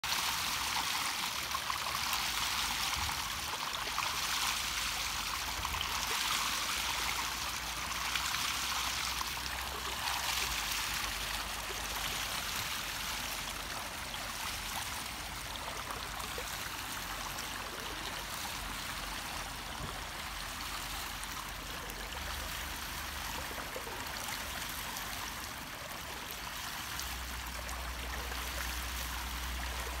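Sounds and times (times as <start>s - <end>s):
water rushing and splashing over stone: 0.0s - 30.0s.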